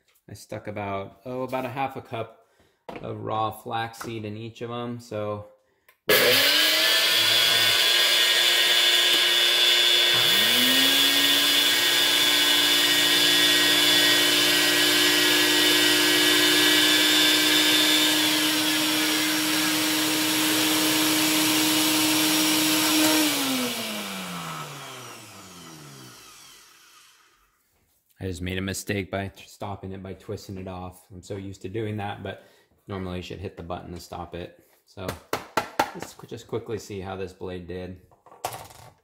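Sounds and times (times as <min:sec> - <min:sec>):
blender motor milling seeds: 0:06.1 - 0:27.5
blender motor winding down: 0:06.1 - 0:27.6.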